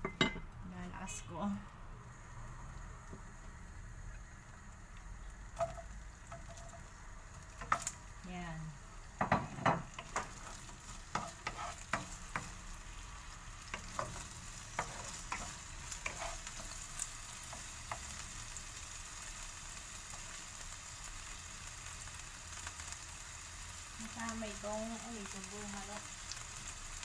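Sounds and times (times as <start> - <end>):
sausage sizzling in oil: 0.2 - 27.0
wooden spatula scraping pan: 9.3 - 12.6, 13.7 - 16.8.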